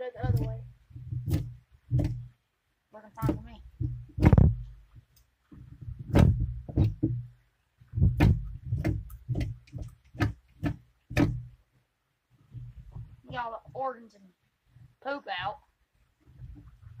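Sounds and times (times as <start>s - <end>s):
knife knocking on wooden board: 3.2s - 4.7s, 8.0s - 11.6s.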